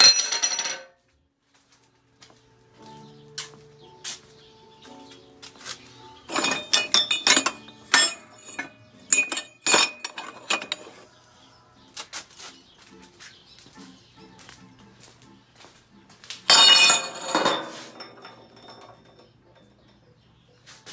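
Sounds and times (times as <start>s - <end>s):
quiet background music: 0.0s - 20.9s
metal tubes clanking together: 6.2s - 11.1s, 16.5s - 20.1s.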